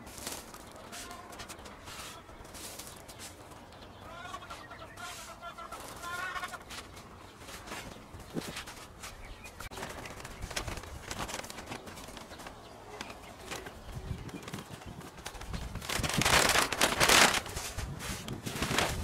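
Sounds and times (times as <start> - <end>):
hands scraping sawdust: 0.0 - 3.4, 4.5 - 9.2
plastic sack crinkling: 9.7 - 12.6, 14.3 - 19.0.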